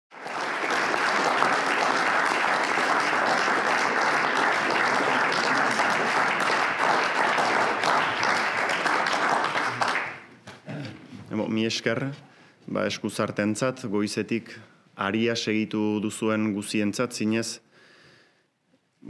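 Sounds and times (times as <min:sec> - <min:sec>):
audience applauding: 0:00.1 - 0:10.3.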